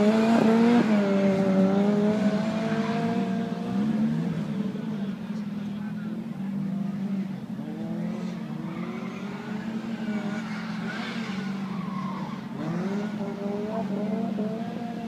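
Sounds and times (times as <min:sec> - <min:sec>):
rally car engine revving: 0:00.0 - 0:15.0
tyre squeal: 0:08.6 - 0:13.2.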